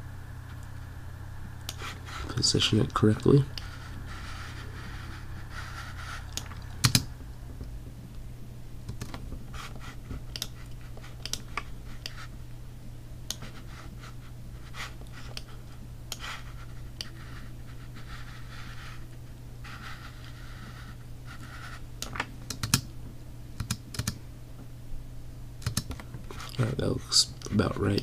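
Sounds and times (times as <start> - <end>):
steady low hum: 0.0 - 28.0
keyboard and mouse clicks: 6.3 - 7.1, 8.9 - 9.2, 10.3 - 12.2, 22.0 - 22.9, 23.6 - 24.2, 25.6 - 26.0.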